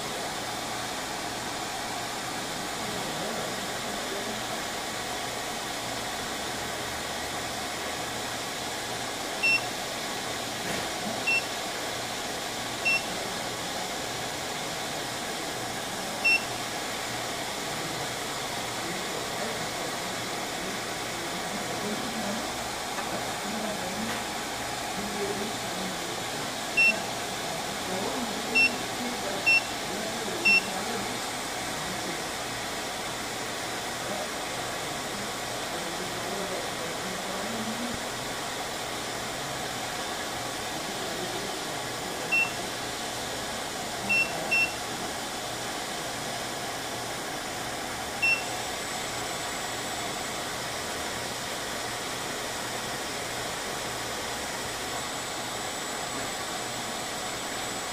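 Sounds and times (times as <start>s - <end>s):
fan whir: 0.0s - 57.9s
keypad beeps: 9.4s - 9.6s, 11.3s - 11.5s, 12.8s - 13.1s, 16.2s - 16.5s, 26.8s - 27.0s, 28.6s - 28.8s, 29.5s - 29.7s, 30.4s - 30.7s, 42.3s - 42.6s, 44.1s - 44.8s, 48.2s - 48.5s.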